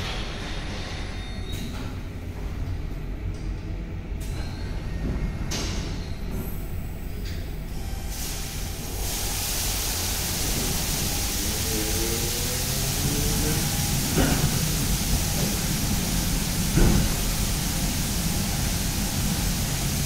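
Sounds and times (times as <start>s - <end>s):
car wash machine humming: 7.9s - 20.0s
hiss of water spray: 8.1s - 20.0s.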